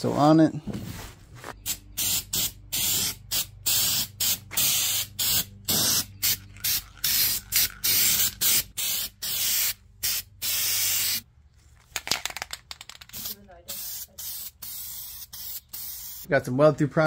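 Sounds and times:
aerosol can spraying: 1.7 - 11.2, 13.1 - 16.3.

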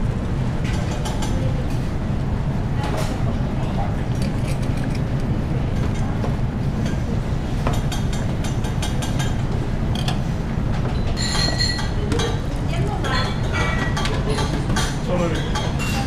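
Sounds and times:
kitchen background rumble: 0.0 - 16.0
ringing clink: 11.2 - 11.9.

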